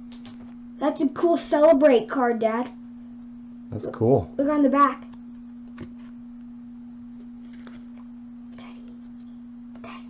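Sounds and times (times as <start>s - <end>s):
steady electrical hum: 0.0s - 10.0s
trading cards rustling: 7.3s - 8.0s.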